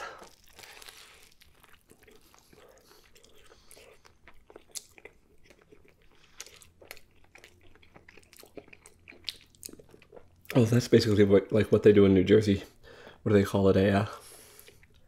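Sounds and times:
person chewing food: 0.0s - 10.6s, 14.3s - 15.0s.

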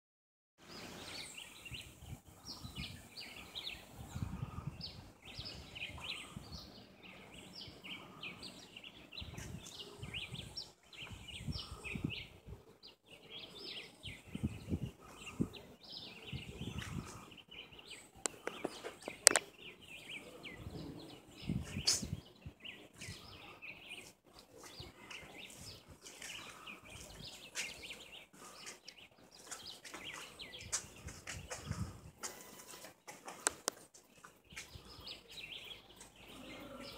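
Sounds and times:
birds chirping: 0.6s - 36.9s
wind rumbling on microphone: 0.7s - 8.2s, 9.1s - 12.8s, 14.0s - 17.5s, 20.3s - 23.6s, 30.1s - 32.2s
sharp clicks: 18.3s - 19.5s.

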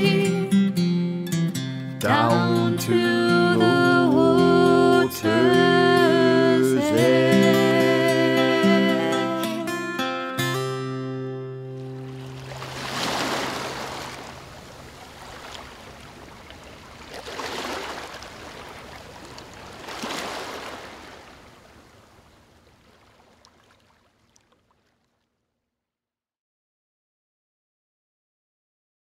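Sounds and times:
acoustic guitar note: 0.0s - 14.5s
sea waves washing in: 11.8s - 24.4s.

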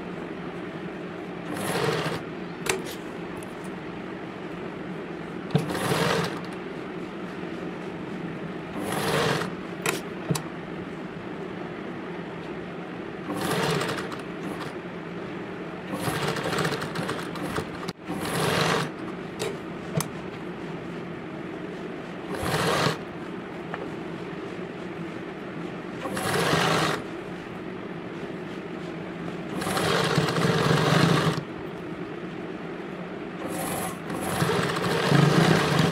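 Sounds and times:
sewing machine stitching: 1.5s - 2.2s, 5.5s - 6.6s, 8.8s - 10.0s, 13.3s - 14.7s, 15.9s - 19.0s, 22.3s - 23.0s, 26.0s - 27.0s, 29.5s - 31.4s, 33.4s - 35.9s.

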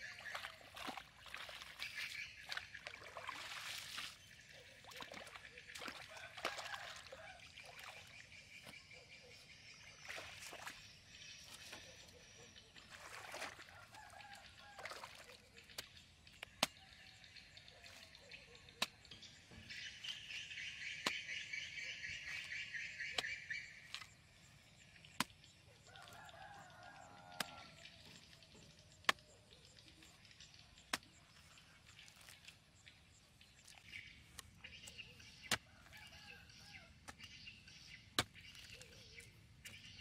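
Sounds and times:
hoe chopping wet earth: 15.7s - 16.8s, 21.0s - 21.5s, 25.1s - 26.2s, 27.1s - 27.8s, 29.0s - 29.3s, 30.8s - 32.3s, 33.7s - 40.0s.

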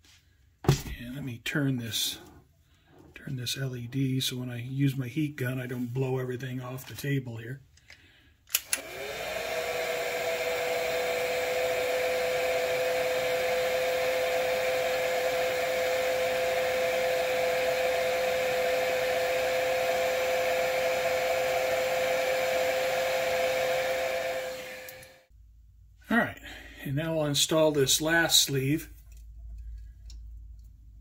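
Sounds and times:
heat gun switch click: 8.5s - 8.9s
heat gun fan whine: 8.5s - 25.3s.

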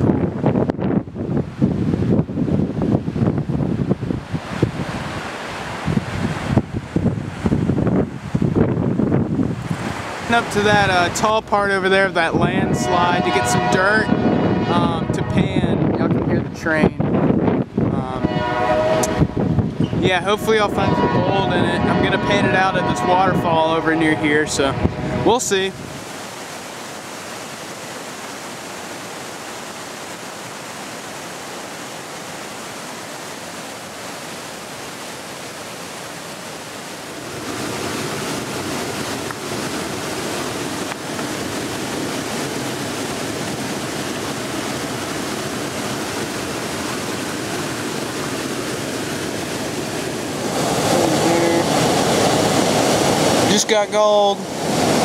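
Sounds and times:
waterfall rushing: 1.6s - 15.4s, 18.1s - 55.0s
stream water splashing around pan: 25.8s - 55.0s.

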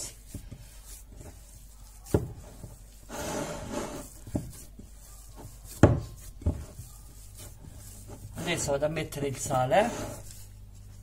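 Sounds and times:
hands kneading dough: 0.0s - 11.0s.

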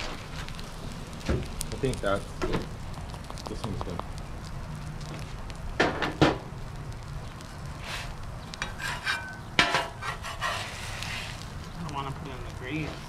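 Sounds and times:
food sizzling on a griddle: 0.0s - 13.0s
metal utensils scraping a griddle: 7.8s - 11.4s.

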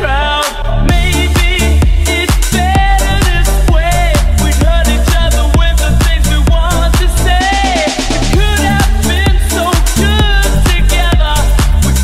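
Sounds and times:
dance music: 0.0s - 12.0s
kick drum: 0.9s - 12.0s.

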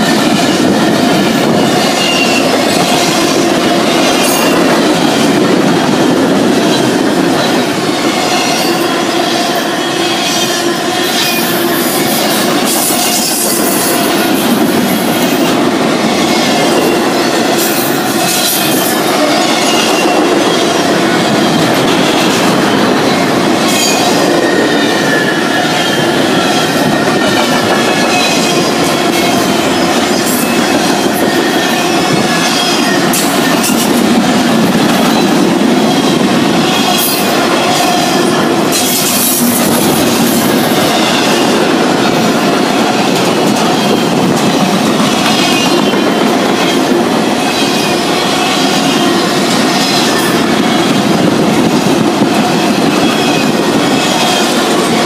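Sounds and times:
train wheels rumbling on rails: 0.0s - 55.0s
high-pitched wheel squeal: 1.9s - 2.6s.

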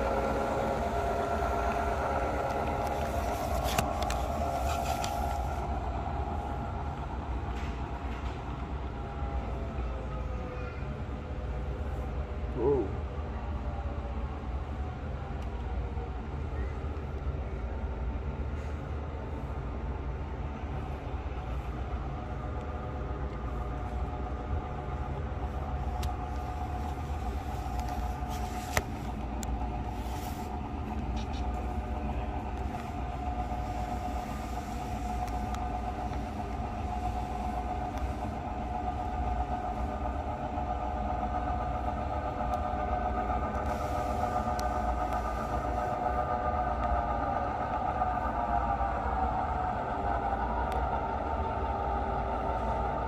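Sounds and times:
model train humming and rumbling: 0.0s - 53.0s.

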